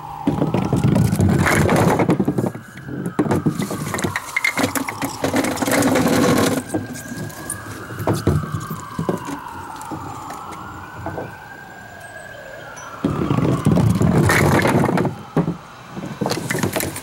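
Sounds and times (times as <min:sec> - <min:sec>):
faint rising and falling wail: 0:00.0 - 0:17.0
wooden pins clattering on deck: 0:00.3 - 0:11.3, 0:13.0 - 0:17.0
pins rattling on cords: 0:00.4 - 0:11.3.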